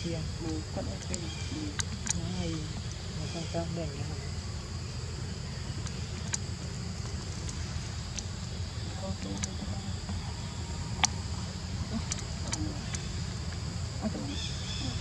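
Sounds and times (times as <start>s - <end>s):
insect drone: 0.0s - 15.0s
low rumble: 0.0s - 15.0s
sharp clicks: 1.0s - 3.1s, 5.8s - 8.3s.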